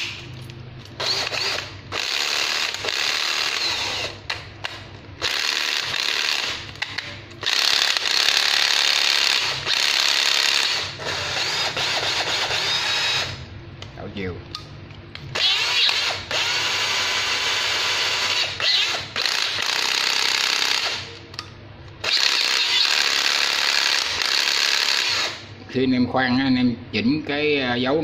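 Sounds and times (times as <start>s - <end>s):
cordless drill running: 1.0s - 4.3s, 5.2s - 6.6s, 7.4s - 13.4s, 15.4s - 21.1s, 22.0s - 25.5s
drill clutch ratcheting: 1.0s - 4.4s, 5.2s - 13.4s, 15.4s - 21.1s, 22.0s - 25.4s.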